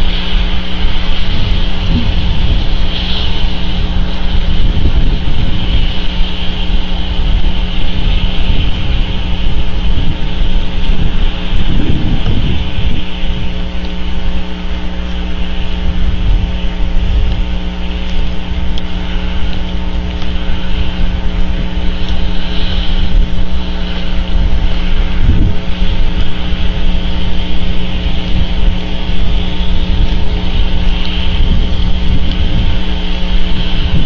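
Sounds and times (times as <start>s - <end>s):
constant low hum: 0.0s - 34.0s
rain: 0.0s - 34.0s
wind noise on microphone: 0.0s - 34.0s.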